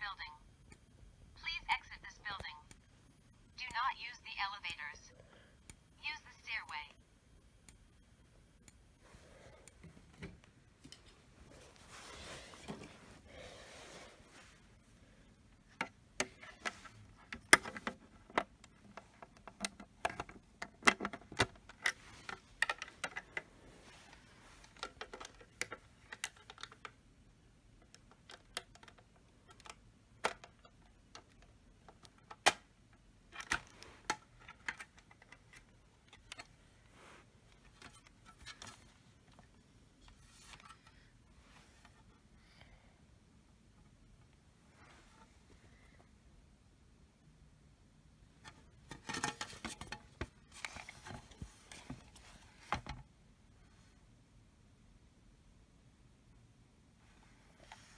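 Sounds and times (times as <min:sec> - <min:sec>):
plastic parts clicking: 0:24.6 - 0:27.0, 0:27.8 - 0:32.7, 0:33.3 - 0:36.5.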